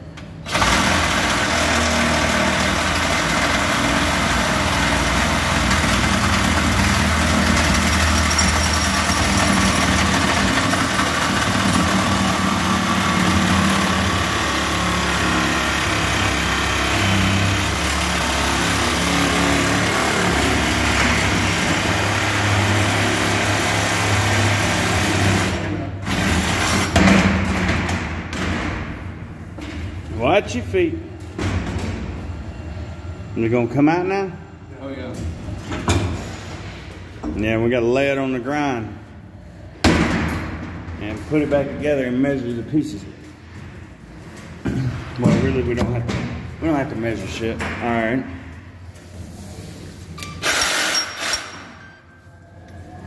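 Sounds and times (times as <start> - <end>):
cordless power tool running: 0.5 - 8.1, 9.9 - 26.6.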